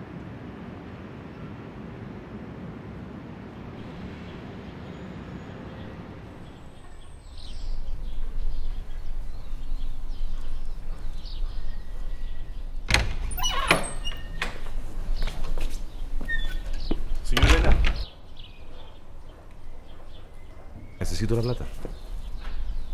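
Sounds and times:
street rumble: 0.0s - 22.9s
bird chirps: 4.2s - 14.4s
wooden door banging and rattling: 12.8s - 14.8s, 16.2s - 18.1s.

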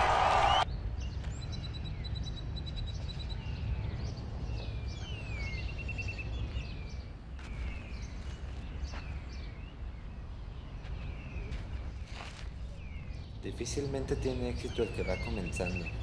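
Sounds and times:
loud crowd noise: 0.0s - 0.6s
birds chirping: 0.0s - 16.0s.

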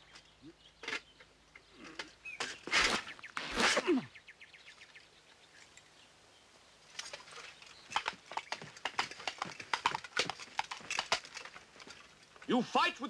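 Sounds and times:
coconut halves clip-clop knocks: 7.9s - 12.1s.

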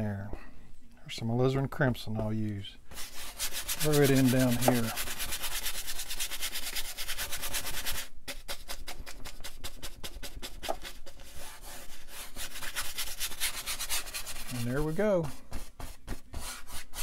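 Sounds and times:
paintbrush scrubbing on canvas: 2.9s - 17.0s.

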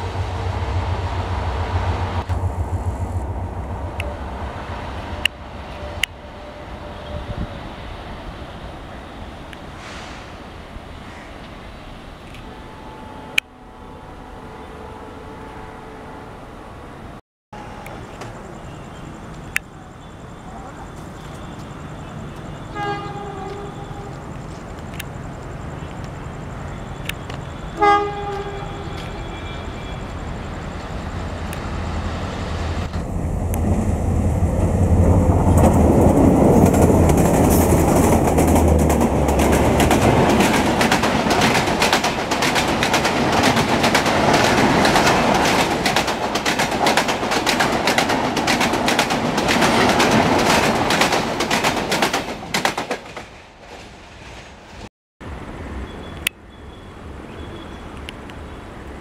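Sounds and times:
deep diesel engine rumble: 0.0s - 6.2s
locomotive horn blast: 12.4s - 16.6s, 22.7s - 24.3s, 27.7s - 30.1s
train coaches clattering over rails: 34.5s - 54.9s.

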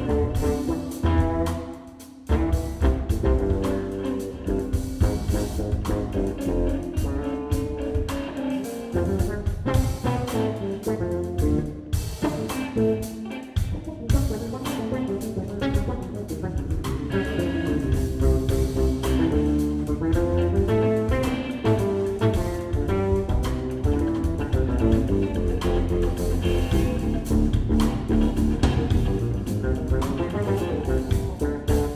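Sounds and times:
drum kit: 0.0s - 31.9s
electric bass: 0.0s - 31.9s
electric guitar lead: 0.0s - 31.9s.

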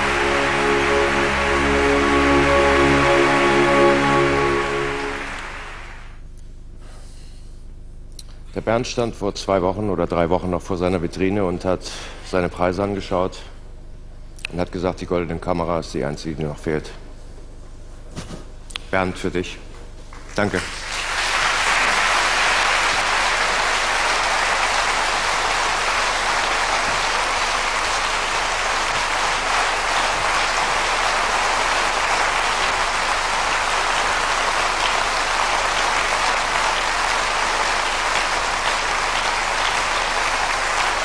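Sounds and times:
large audience applauding: 0.0s - 6.2s, 20.1s - 41.0s.

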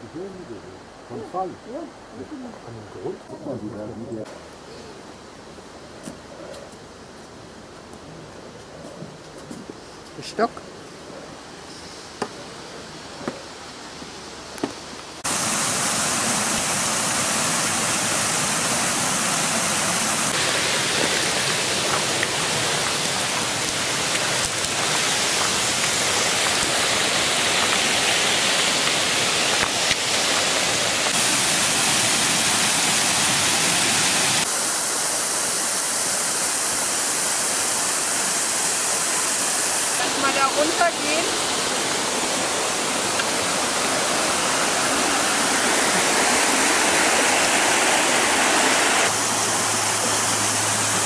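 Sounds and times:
water rushing over stone weir: 15.2s - 51.0s.

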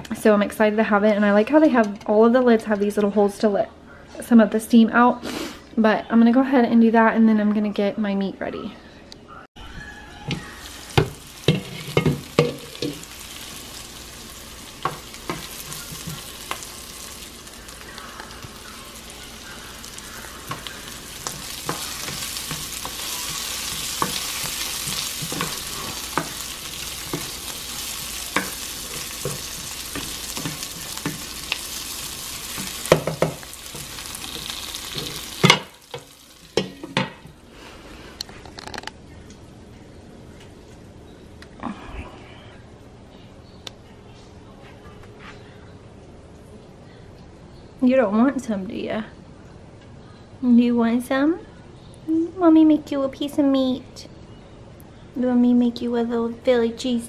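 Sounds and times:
vegetables sizzling in oil: 10.2s - 37.4s
spoon scraping a pan: 10.3s - 13.8s, 14.7s - 17.2s, 17.9s - 37.3s.

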